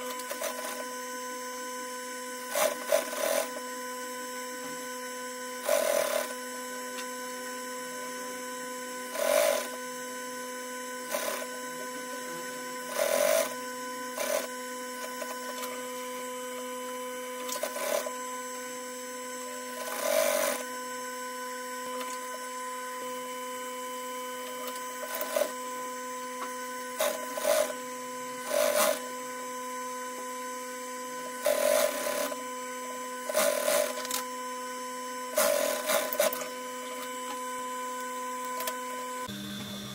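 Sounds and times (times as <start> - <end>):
sewing machine stitching: 0.0 - 0.8, 2.4 - 3.6, 5.6 - 6.4, 9.1 - 9.8, 11.0 - 15.8, 17.4 - 18.2, 19.7 - 20.6, 24.5 - 25.6, 26.9 - 27.8, 28.4 - 29.1, 31.3 - 32.4, 33.2 - 34.2, 35.3 - 36.5.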